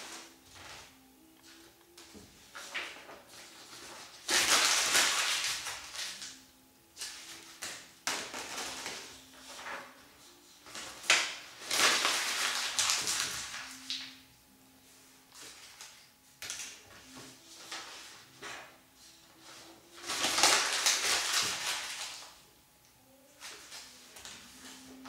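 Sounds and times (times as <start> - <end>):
paper crumpling: 2.5 - 6.4, 10.6 - 14.2, 19.4 - 22.4.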